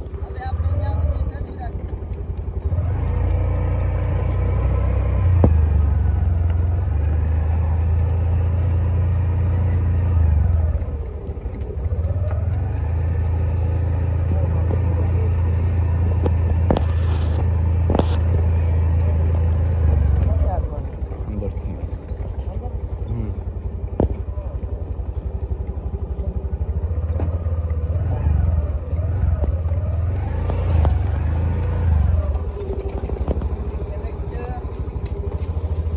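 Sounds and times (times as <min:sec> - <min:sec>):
vehicle engine rumbling: 0:00.0 - 0:35.9.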